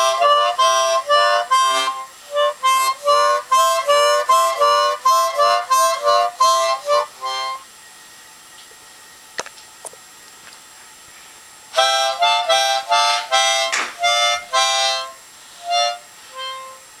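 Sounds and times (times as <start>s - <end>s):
harmonica blown in short puffs: 0.0s - 7.7s, 11.7s - 17.0s.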